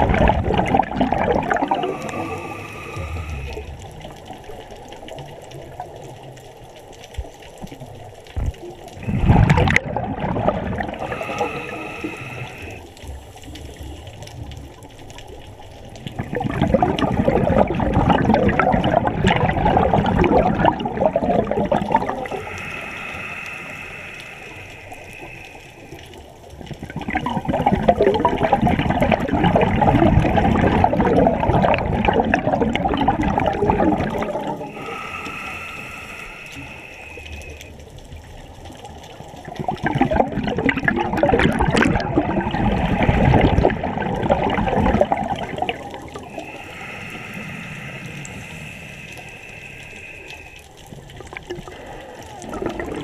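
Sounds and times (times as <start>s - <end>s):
bubbling exhalations underwater: 0.0s - 4.6s, 8.4s - 12.8s, 16.0s - 24.6s, 26.8s - 37.2s, 39.4s - 49.0s, 51.2s - 53.0s
regulator inhalations hissing: 1.6s - 3.8s, 10.9s - 13.9s, 22.0s - 26.2s, 34.1s - 37.8s, 46.2s - 50.8s.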